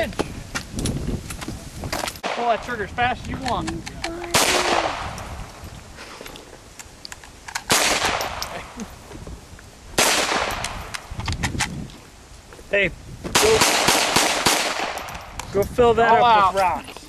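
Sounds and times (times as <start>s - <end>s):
pistol shots with echo: 4.3s - 5.2s, 7.7s - 8.6s, 10.0s - 10.8s, 13.4s - 15.3s.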